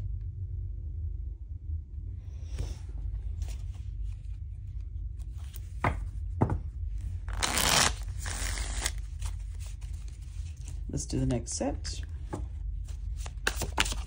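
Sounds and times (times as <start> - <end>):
cards shuffling: 7.3 - 10.9, 12.2 - 14.0
cards flicked and snapped: 7.4 - 9.0, 13.2 - 14.0.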